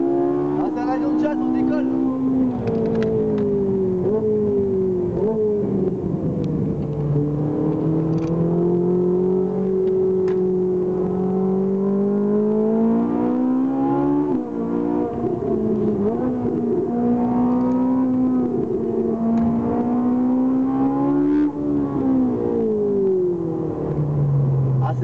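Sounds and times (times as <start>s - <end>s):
sports car engine revving: 0.0s - 25.0s.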